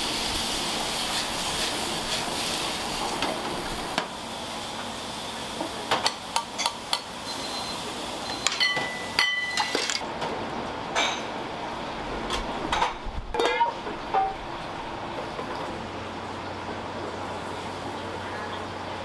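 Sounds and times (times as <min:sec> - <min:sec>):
kitchen noise hiss: 0:00.0 - 0:19.0
dishes clinking and knocking: 0:08.4 - 0:10.0, 0:12.7 - 0:14.4.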